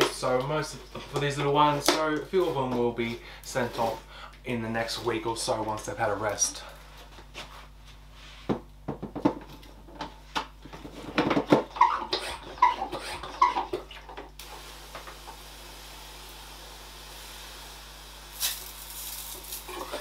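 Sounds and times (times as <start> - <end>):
pump handle knocks and squeaks: 11.4 - 13.8
water spraying hiss: 14.4 - 20.0.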